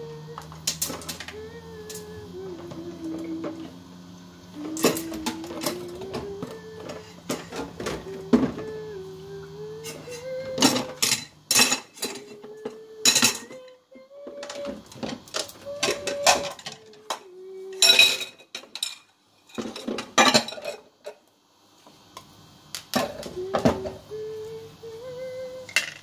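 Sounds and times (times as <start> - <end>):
person humming: 0.0 - 11.3, 11.9 - 18.3, 23.0 - 26.0
pots and pans clattering: 4.6 - 8.7, 9.9 - 21.2, 25.7 - 26.0.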